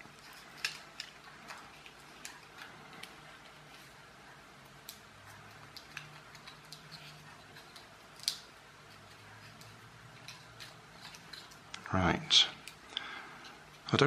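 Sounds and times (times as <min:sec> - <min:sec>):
fingers clicking on wooden toy: 0:04.8 - 0:11.8.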